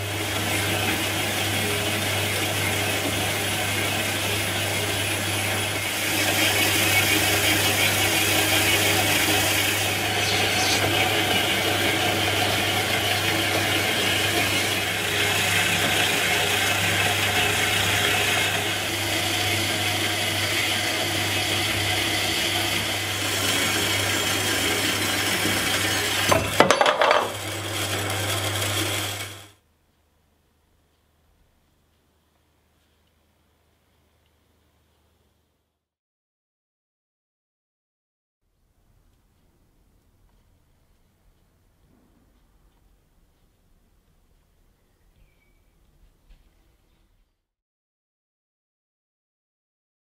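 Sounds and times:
band saw motor hum: 0:00.0 - 0:29.6
saw blade rasping through metal: 0:00.3 - 0:29.5.

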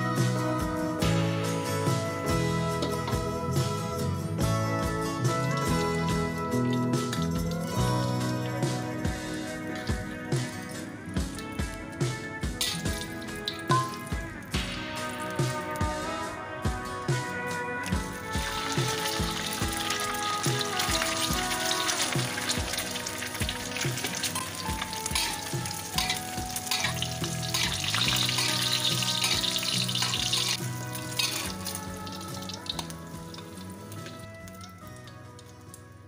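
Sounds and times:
background music: 0:00.0 - 0:36.0
metal spatula in a pan: 0:12.6 - 0:14.2, 0:18.5 - 0:34.2
egg sizzling in a wok: 0:17.9 - 0:35.8.

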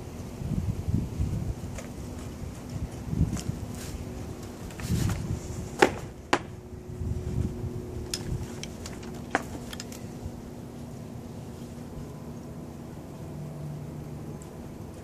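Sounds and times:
low wind rumble on microphone: 0:00.0 - 0:12.4.

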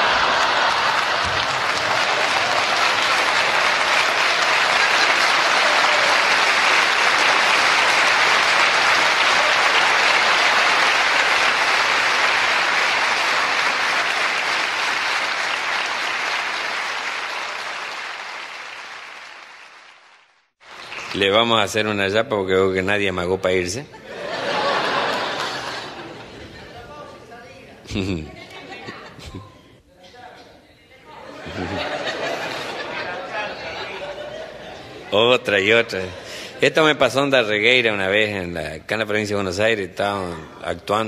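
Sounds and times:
audience applauding: 0:00.0 - 0:21.8, 0:24.5 - 0:26.1.

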